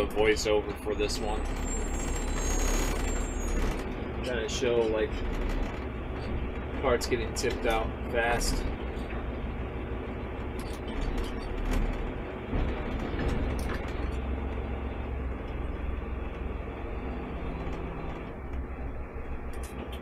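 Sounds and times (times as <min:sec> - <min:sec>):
hydraulic arm tipping cart: 0:00.0 - 0:20.0
truck engine running: 0:00.0 - 0:20.0
knocks: 0:10.7 - 0:14.3.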